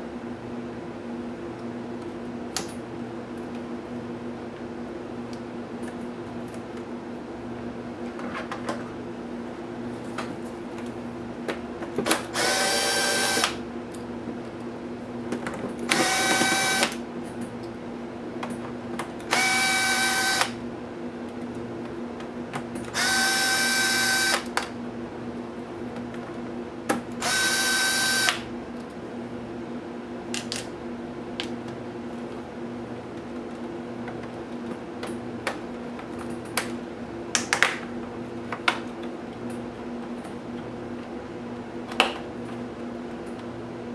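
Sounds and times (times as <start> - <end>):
cordless drill whining: 12.4 - 13.6, 15.9 - 16.9, 19.3 - 20.6, 23.0 - 24.4, 27.2 - 28.4.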